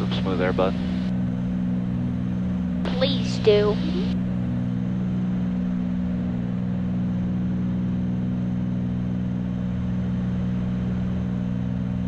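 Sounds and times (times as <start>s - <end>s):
piston aircraft engines droning: 0.0s - 12.0s.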